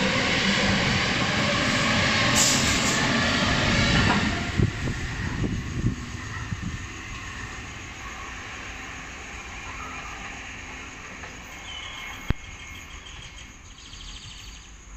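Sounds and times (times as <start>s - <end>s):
train running: 0.0s - 13.7s.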